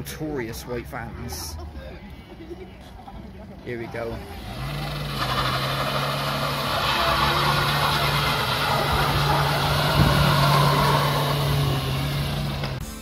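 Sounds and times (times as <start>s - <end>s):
van engine at high revs: 4.0s - 13.0s.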